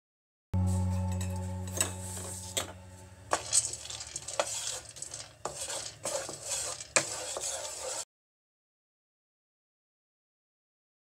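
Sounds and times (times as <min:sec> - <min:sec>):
spatula stirring nuts in a pan: 0:03.3 - 0:08.0.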